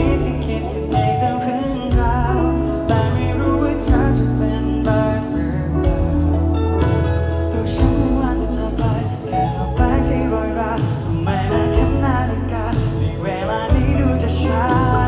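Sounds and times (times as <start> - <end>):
man singing into a microphone: 0.0 - 6.4, 7.5 - 15.0
band accompaniment with bass line: 0.0 - 15.0.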